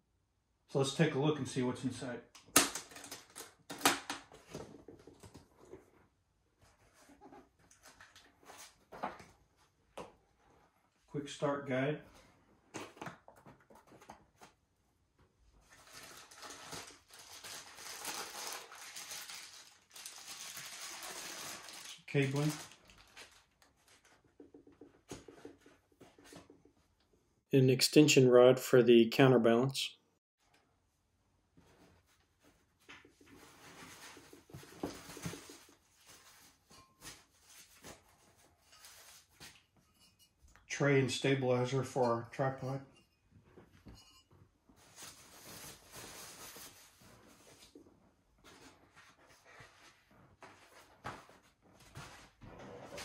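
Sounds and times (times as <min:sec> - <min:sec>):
plastic bag crinkling: 0:15.8 - 0:24.1.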